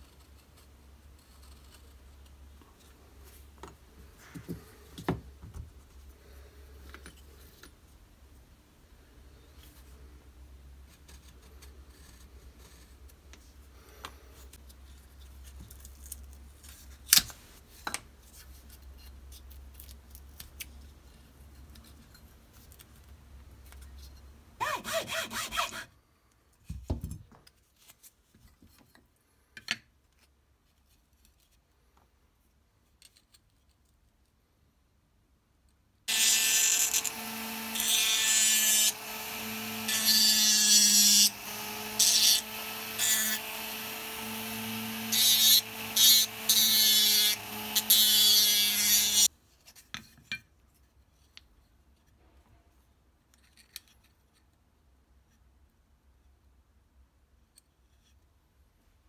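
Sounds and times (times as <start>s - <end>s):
rotary tool sanding wood: 24.6s - 25.9s, 36.1s - 49.3s.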